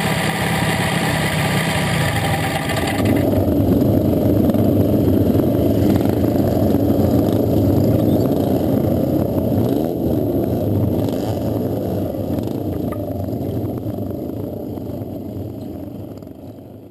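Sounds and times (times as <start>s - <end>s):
motorcycle engine idling: 0.0s - 8.7s.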